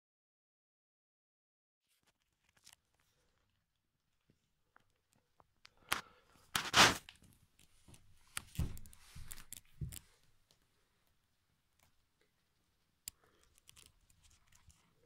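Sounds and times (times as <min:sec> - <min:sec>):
rustling: 0:06.0 - 0:10.7.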